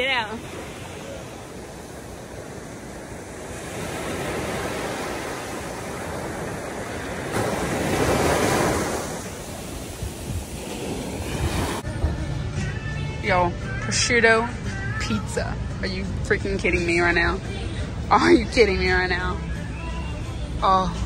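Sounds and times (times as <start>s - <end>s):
ocean waves washing in: 0.0s - 11.9s.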